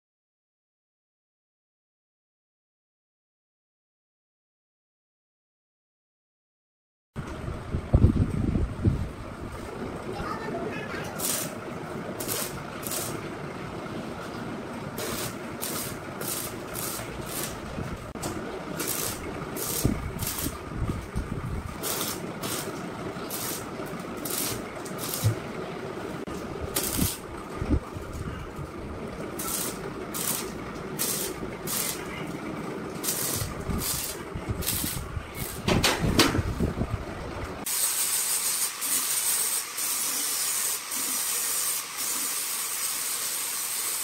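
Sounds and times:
arc welder crackling: 9.5s - 36.8s, 37.4s - 44.0s.

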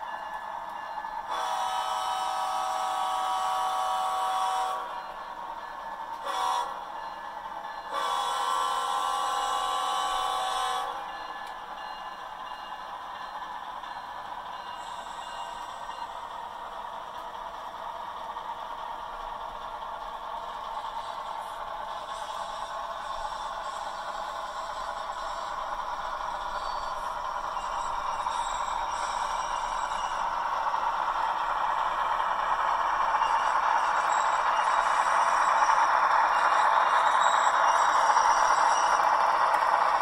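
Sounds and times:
model locomotive horn blasts: 1.3s - 5.0s, 6.1s - 7.0s, 7.9s - 11.2s.

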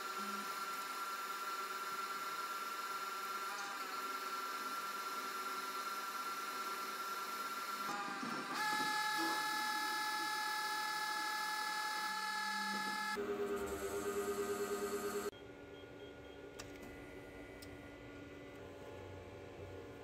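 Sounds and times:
metal lathe spindle whining: 0.1s - 15.3s.

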